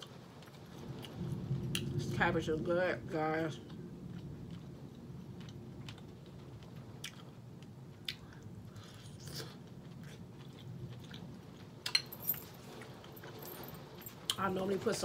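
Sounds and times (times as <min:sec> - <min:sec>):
mouth chewing with wet smacks: 0:07.0 - 0:12.0.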